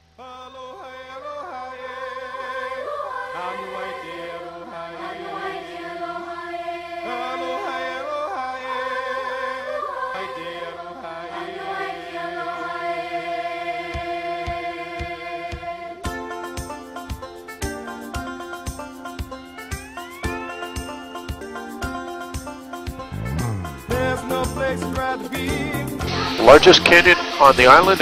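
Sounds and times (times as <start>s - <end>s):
chant-like singing voices: 0.2s - 16.1s, 23.0s - 27.6s
sustained accompaniment: 18.5s - 25.6s.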